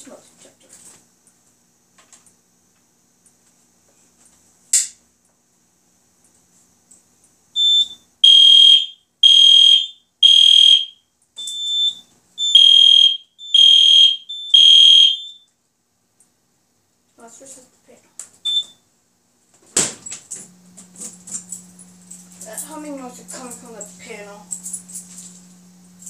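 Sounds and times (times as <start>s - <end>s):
fire alarm horn beeping: 7.6s - 15.5s, 18.4s - 18.8s.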